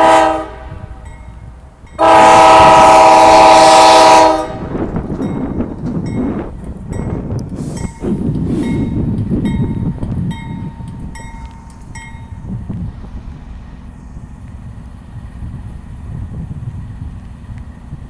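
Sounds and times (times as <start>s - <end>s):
diesel locomotives rumbling: 0.0s - 18.0s
bell dinging: 8.7s - 12.4s.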